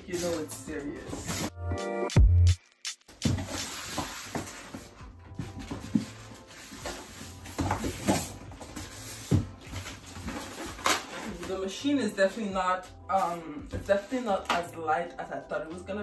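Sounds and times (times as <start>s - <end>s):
cardboard and styrofoam scraping: 0.0s - 1.5s, 3.2s - 11.9s.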